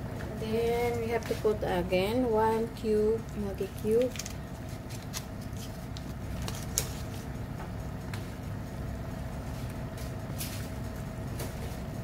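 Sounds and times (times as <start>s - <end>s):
gas stove burners rumbling: 0.0s - 12.0s.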